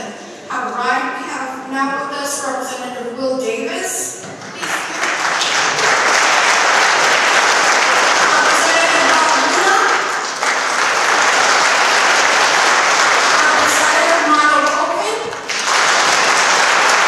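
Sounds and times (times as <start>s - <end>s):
audience applauding: 4.4s - 17.0s
voices: 8.3s - 10.0s, 13.3s - 15.4s.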